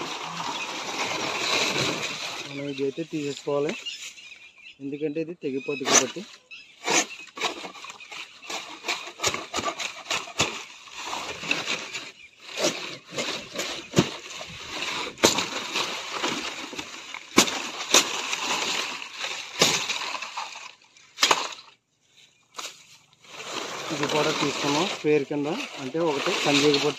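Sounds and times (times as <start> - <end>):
palm fronds rustling and crackling: 0.0 - 4.6, 5.9 - 26.9
fronds snapping: 6.9 - 21.8, 22.5 - 26.9.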